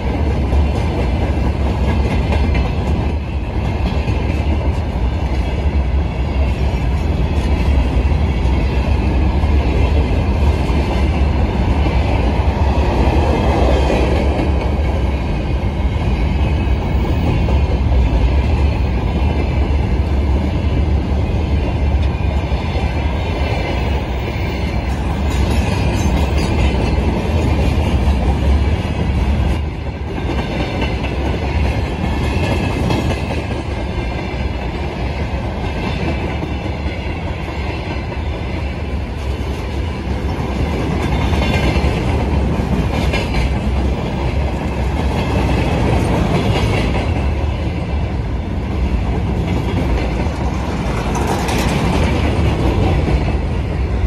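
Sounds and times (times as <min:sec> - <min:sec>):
freight train rumbling past: 0:00.0 - 0:54.0
wheels clacking over rail joints: 0:49.1 - 0:53.4.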